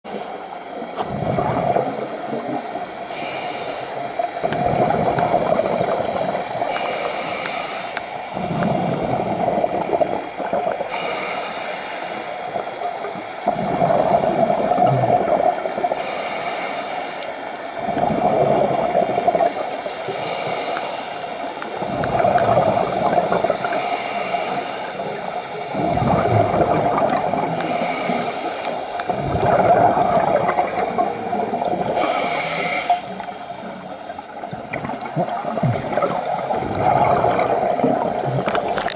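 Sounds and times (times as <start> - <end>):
regulator hiss on inhale: 0.1 - 1.5, 2.1 - 13.8, 15.5 - 25.9, 27.2 - 29.4, 30.9 - 34.4
exhaled bubbles underwater: 0.1 - 16.4, 17.6 - 38.9.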